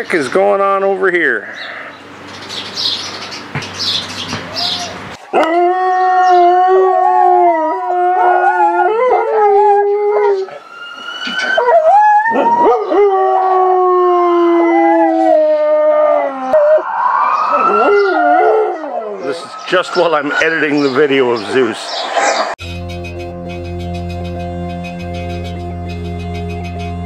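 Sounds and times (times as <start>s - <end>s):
birds chirping: 0.0s - 13.8s, 14.7s - 22.6s
dog howling: 4.5s - 20.7s.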